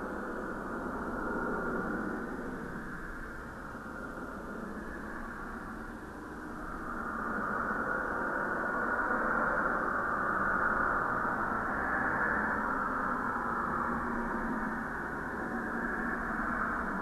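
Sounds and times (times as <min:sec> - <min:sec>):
muffled static hiss: 0:00.0 - 0:17.0.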